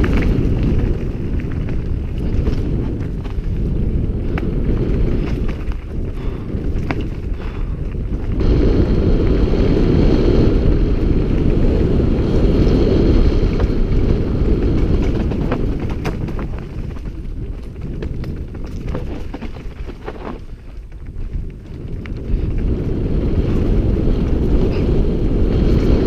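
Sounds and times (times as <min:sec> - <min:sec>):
bike tyre rumble: 0:00.0 - 0:26.0
wind buffeting microphone: 0:00.0 - 0:26.0
clicks and knocks from stones: 0:04.3 - 0:08.4, 0:14.6 - 0:22.2.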